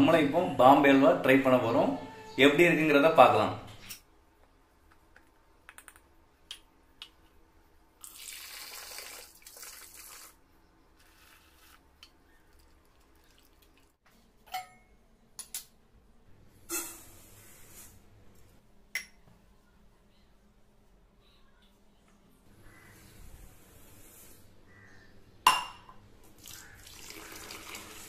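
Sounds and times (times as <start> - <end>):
liquid pouring into bowl: 8.0 - 10.4, 26.4 - 28.0.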